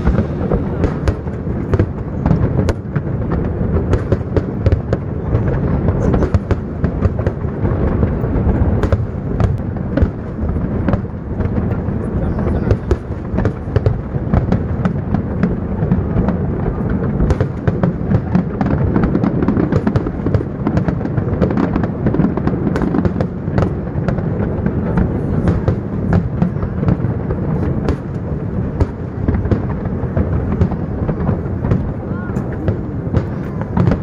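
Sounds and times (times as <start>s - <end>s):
fireworks bursting and crackling: 0.0s - 34.0s.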